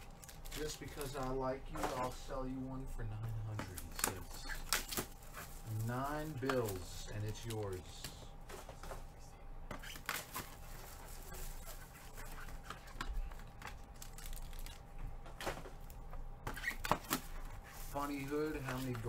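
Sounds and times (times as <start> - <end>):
packaging rustling: 3.5 - 8.7, 9.8 - 19.0.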